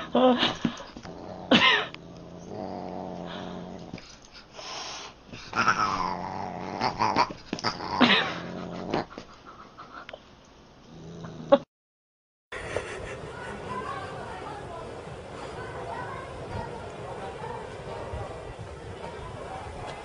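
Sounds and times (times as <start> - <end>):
cat growling: 1.0 - 4.0, 5.5 - 9.2.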